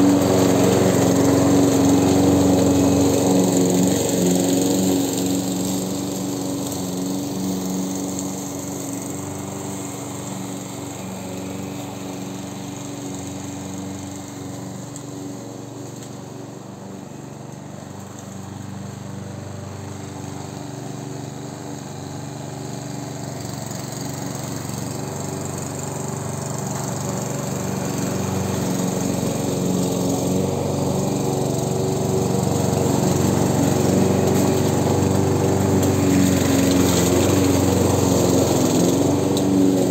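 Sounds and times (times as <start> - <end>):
lawn mower cutting grass: 0.0 - 39.9.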